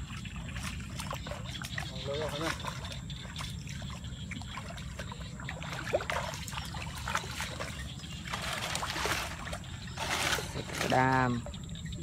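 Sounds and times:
small splashes: 0.0s - 11.5s
muddy water sloshing: 0.0s - 12.0s.

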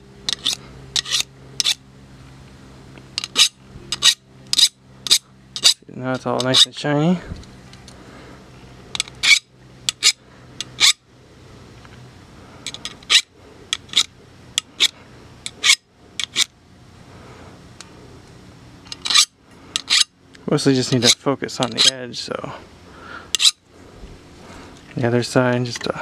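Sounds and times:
file scraping steel blade: 0.3s - 1.8s, 3.2s - 5.8s, 9.0s - 11.0s, 12.7s - 16.5s, 18.9s - 20.1s, 20.9s - 22.0s, 23.4s - 23.6s.

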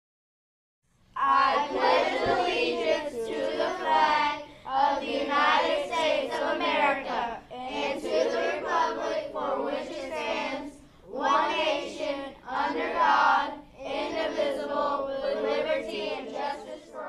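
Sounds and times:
group of voices reciting: 1.2s - 17.0s.

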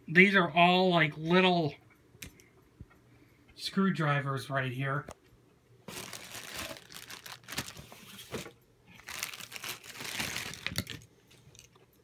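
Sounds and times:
rustling crinkling handling noise: 5.8s - 12.0s.

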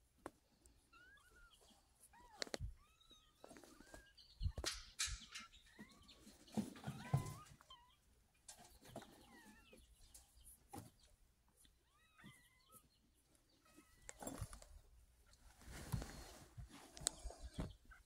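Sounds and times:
kittens mewing: 0.9s - 4.8s.

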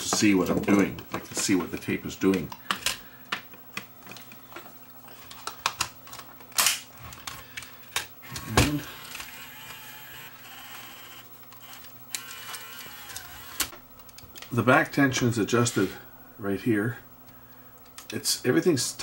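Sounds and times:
mechanism whirring: 5.0s - 19.0s.

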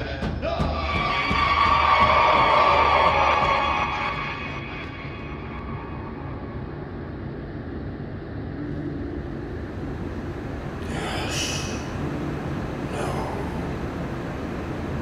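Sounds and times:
low rumble with faint hum: 0.0s - 15.0s
hiss burst: 10.2s - 15.0s.

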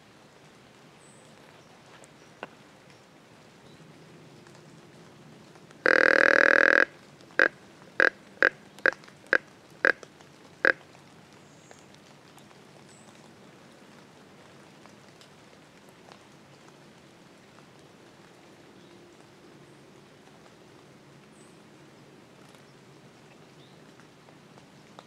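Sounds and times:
deer call blowing: 5.8s - 10.0s.

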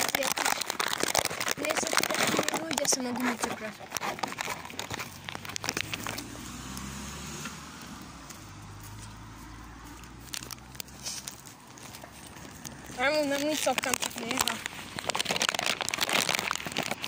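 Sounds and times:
crackling and clicks: 0.0s - 17.0s.

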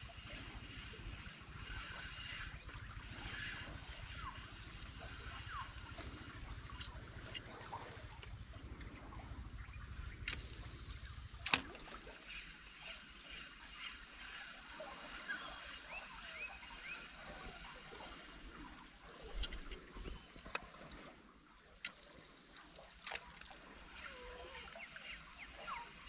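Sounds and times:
insect chorus: 0.0s - 26.0s
sharp click: 11.4s - 11.8s.

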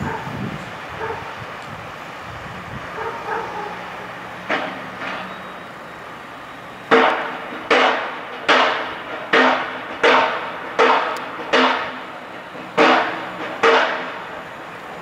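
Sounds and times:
hammer striking metal: 6.9s - 14.4s.

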